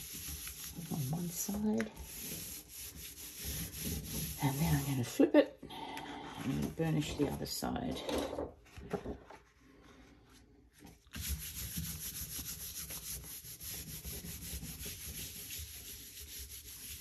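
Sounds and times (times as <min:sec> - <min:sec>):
palms rubbing over paper: 0:00.0 - 0:05.2, 0:11.1 - 0:17.0.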